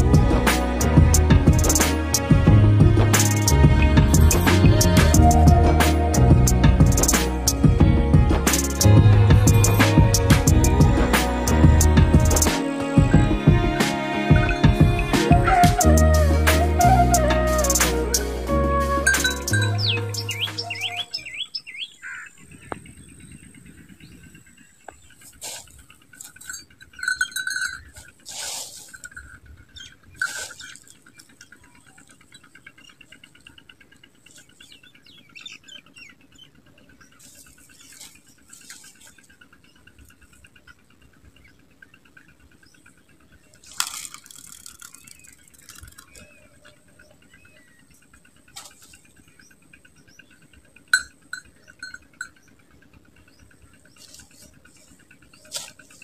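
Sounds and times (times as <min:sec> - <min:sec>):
fishing gear knocks and rustles: 0:43.6 - 0:46.4.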